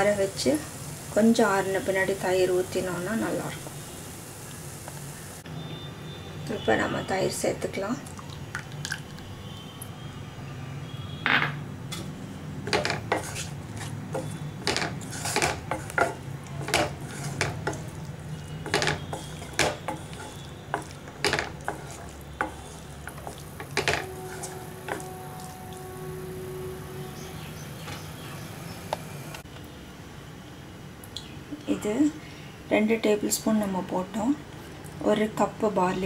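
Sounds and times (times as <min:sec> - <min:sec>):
spoon scraping a pan: 0:12.7 - 0:25.5.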